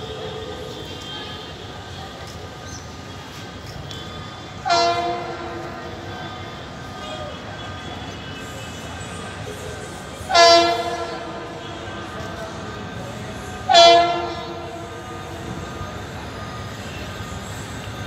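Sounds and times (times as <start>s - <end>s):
moving train rumble: 0.0s - 18.0s
train horn blasts: 4.6s - 6.1s, 10.2s - 12.5s, 13.6s - 15.3s.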